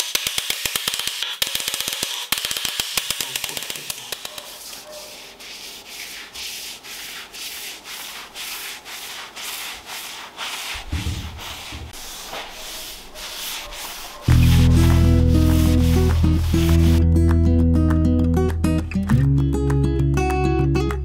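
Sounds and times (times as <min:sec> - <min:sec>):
pad scrubbing a wooden tabletop: 0:04.3 - 0:17.0.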